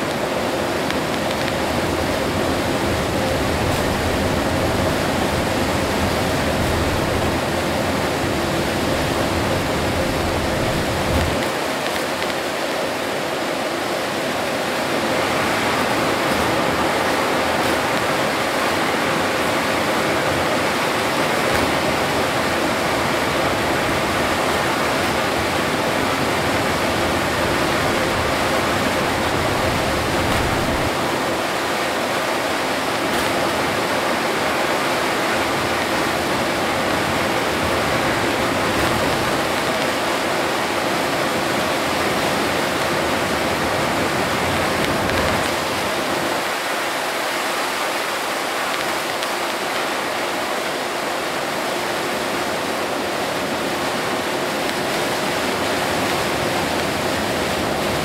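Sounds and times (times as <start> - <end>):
tyres on wet road: 0.0 - 51.5
heavy rain: 0.0 - 58.0.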